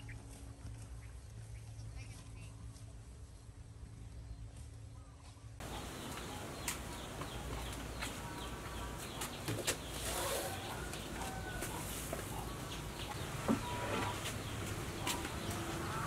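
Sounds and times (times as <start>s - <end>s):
birds chirping: 0.9s - 16.0s
chickens clucking: 5.6s - 16.0s.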